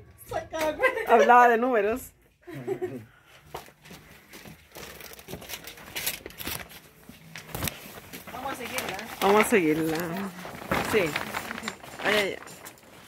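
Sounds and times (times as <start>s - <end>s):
paper crinkling and rustling: 3.6s - 13.0s.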